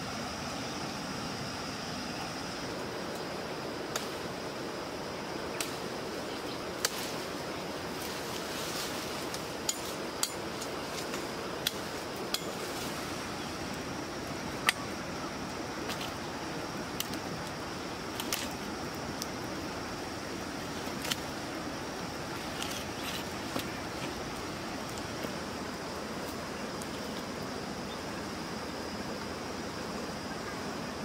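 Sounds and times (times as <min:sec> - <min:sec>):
steady fire hiss: 0:00.0 - 0:31.0
campfire crackling and popping: 0:13.5 - 0:25.6.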